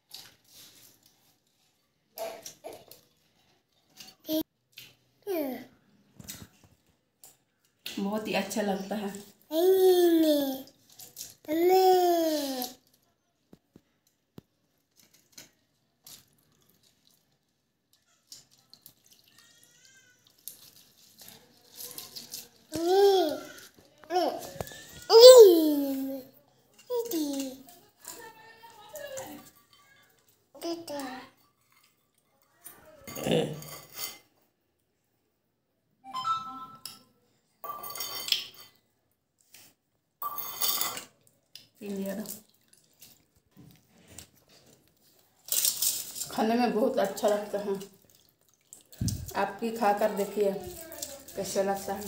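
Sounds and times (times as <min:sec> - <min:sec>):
water dripping: 0:15.0 - 0:21.4, 0:41.4 - 0:43.8, 0:45.5 - 0:52.0
glass bangles clinking: 0:37.6 - 0:38.7, 0:40.2 - 0:41.1
metal bowl clinking: 0:37.6 - 0:38.8, 0:40.2 - 0:41.2.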